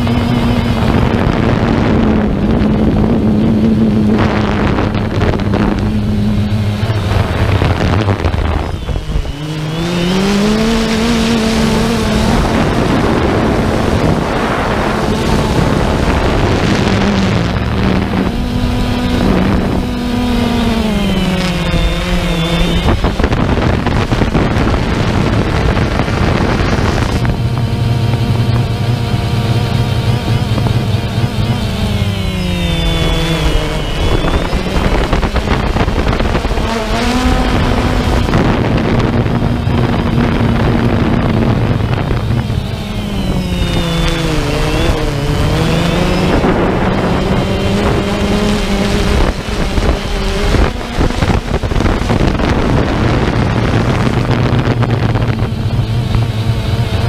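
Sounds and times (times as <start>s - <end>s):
drone propellers buzzing: 0.0s - 57.0s
wind on microphone: 0.0s - 57.0s.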